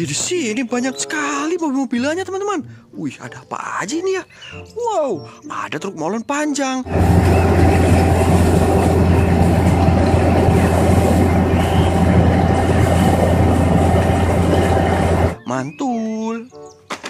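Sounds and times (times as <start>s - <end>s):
diesel engine humming: 6.9s - 15.4s.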